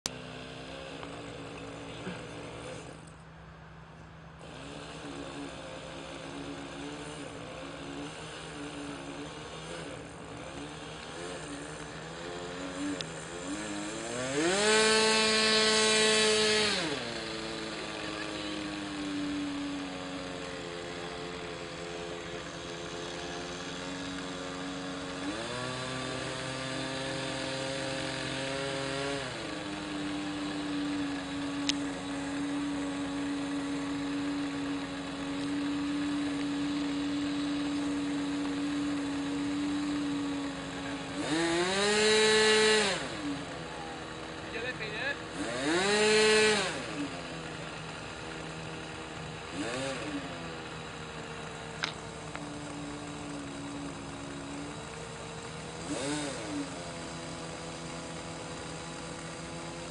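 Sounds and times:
model airplane motor idling and revving: 0:00.0 - 0:59.9.

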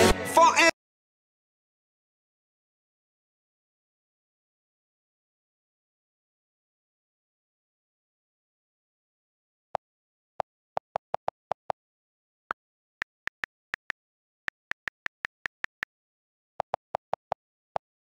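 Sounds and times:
on-screen keyboard clicks: 0:13.0 - 0:16.0, 0:16.6 - 0:18.0.

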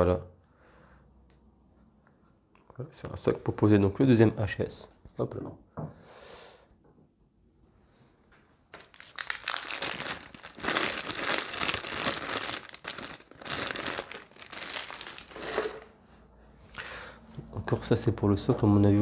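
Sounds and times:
plastic packaging crinkling: 0:08.7 - 0:15.9.

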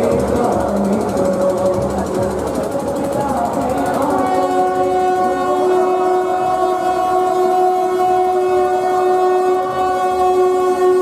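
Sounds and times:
steady horn-like tone: 0:04.3 - 0:11.0.

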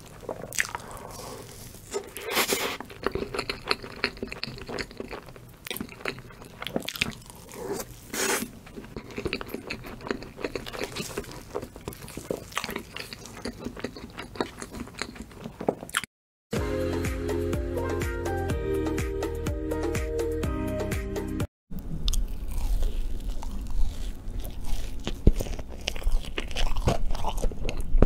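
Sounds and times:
close chewing with mouth clicks: 0:00.0 - 0:16.1, 0:21.8 - 0:28.0.

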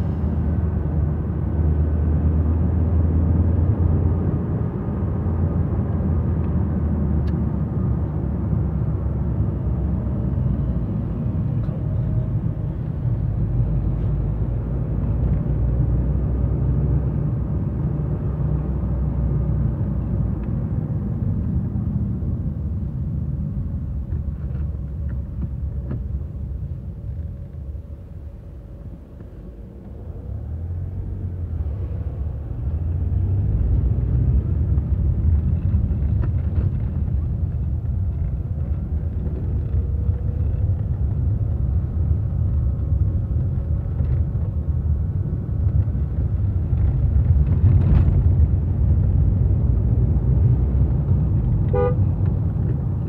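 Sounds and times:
car engine and tyre rumble: 0:00.0 - 0:53.0
car horn toot: 0:51.7 - 0:52.1.

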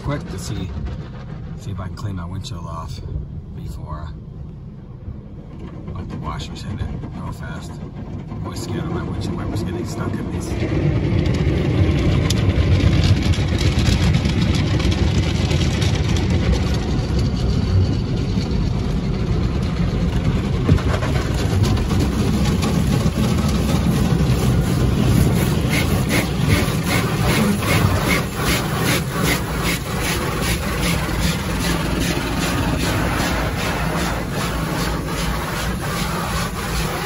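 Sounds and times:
car wash rumble: 0:00.0 - 0:37.0
water spraying on vehicle: 0:20.4 - 0:37.0.

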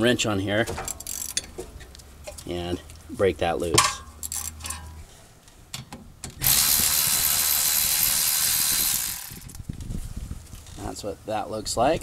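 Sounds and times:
electric ratchet running: 0:06.4 - 0:09.6.

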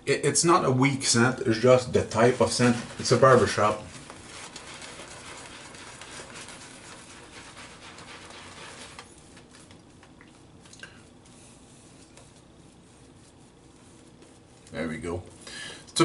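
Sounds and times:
shaving brush scratchy brushing: 0:01.1 - 0:09.8, 0:11.2 - 0:15.4.

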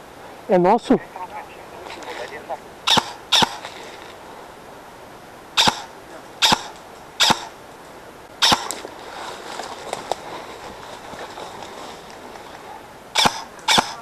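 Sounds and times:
airsoft gun shots: 0:02.9 - 0:03.6, 0:05.6 - 0:07.5, 0:08.4 - 0:08.8, 0:13.2 - 0:14.0.

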